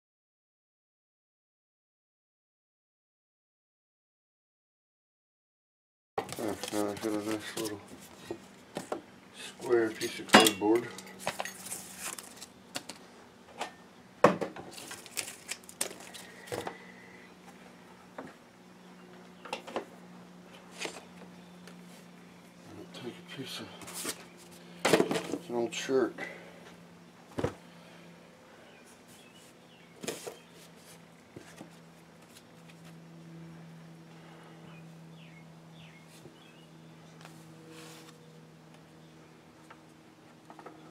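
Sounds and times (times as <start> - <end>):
steady low hum: 6.2 - 40.9.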